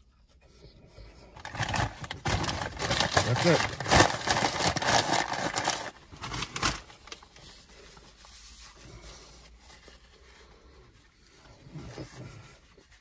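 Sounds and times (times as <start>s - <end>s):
paper crumpling: 1.4s - 8.5s.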